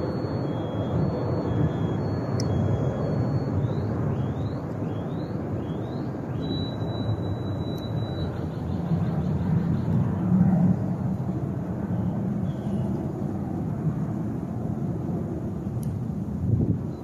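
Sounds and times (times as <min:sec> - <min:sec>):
thin high whistle: 0:00.0 - 0:09.2
faint high chirps: 0:00.0 - 0:10.0
low outdoor rumble: 0:00.0 - 0:17.0.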